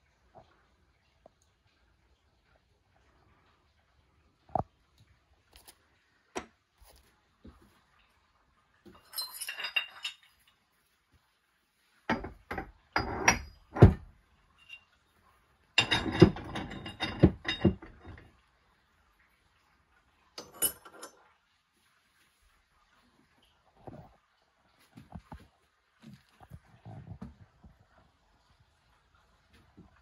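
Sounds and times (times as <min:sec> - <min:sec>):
metal ingots clinking: 0:08.9 - 0:10.6, 0:20.4 - 0:21.2.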